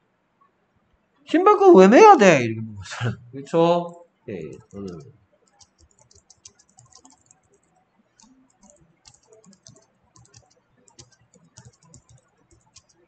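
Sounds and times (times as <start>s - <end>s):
typing on computer keyboard: 4.6s - 13.0s.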